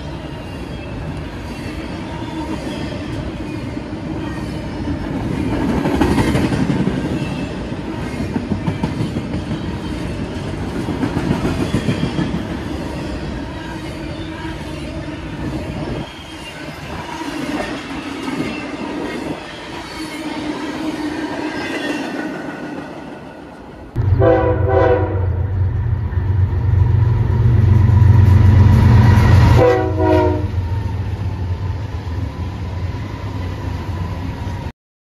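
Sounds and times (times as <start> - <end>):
diesel locomotive engine rumble: 23.6 - 34.7
train horn blasts: 24.0 - 25.5, 28.2 - 30.7.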